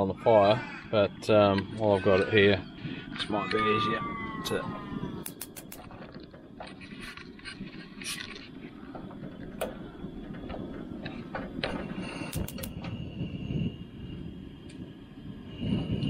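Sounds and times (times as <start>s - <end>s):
gas burner rushing: 4.6s - 16.0s.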